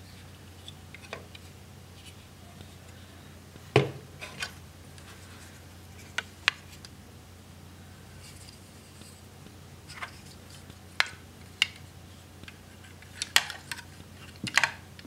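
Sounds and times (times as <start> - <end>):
model thudding on table: 3.8 - 4.1.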